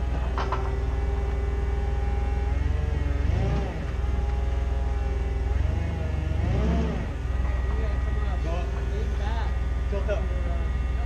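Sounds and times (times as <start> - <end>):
forklift engine running: 0.0 - 11.0.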